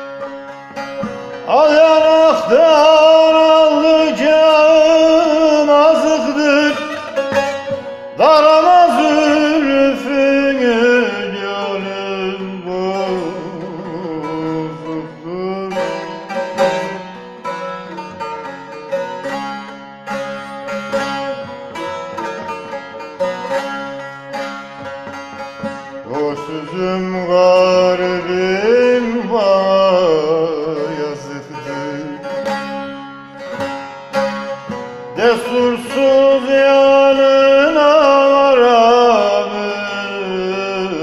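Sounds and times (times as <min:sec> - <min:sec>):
man singing: 0:00.0 - 0:18.3, 0:25.4 - 0:32.9, 0:34.1 - 0:41.0
plucked saz melody: 0:00.0 - 0:41.0.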